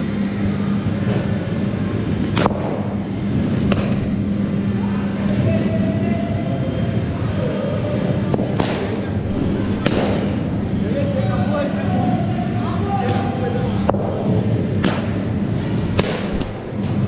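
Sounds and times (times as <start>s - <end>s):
low hum: 0.0s - 17.0s
cricket bat hitting ball: 15.9s - 16.6s.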